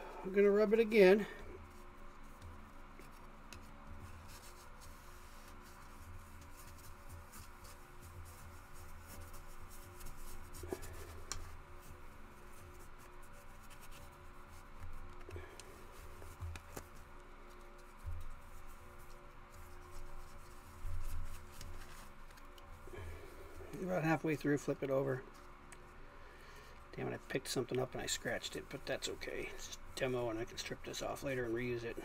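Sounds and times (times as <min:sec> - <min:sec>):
paper towel rubbing plastic: 0:00.6 - 0:25.6.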